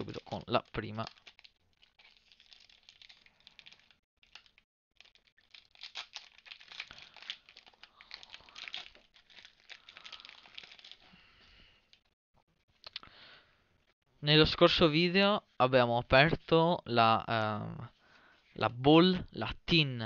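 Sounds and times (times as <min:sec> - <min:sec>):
foil wrapper crinkling and tearing: 0:00.0 - 0:11.3.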